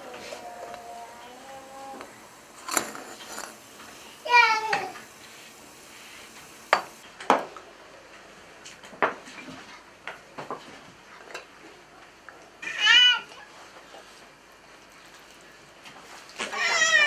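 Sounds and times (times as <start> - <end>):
kettle and cups clinking: 2.0 - 7.5.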